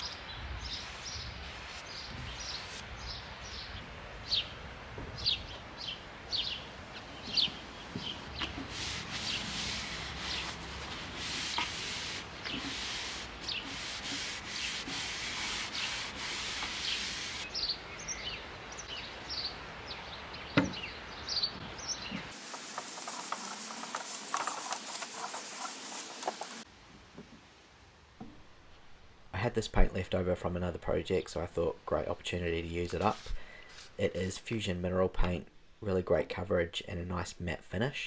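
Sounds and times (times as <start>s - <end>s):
birds chirping: 0.0s - 14.1s, 15.2s - 26.6s
rubbing strokes on timber: 0.7s - 2.9s, 7.9s - 17.5s, 22.2s - 26.7s, 32.9s - 34.0s.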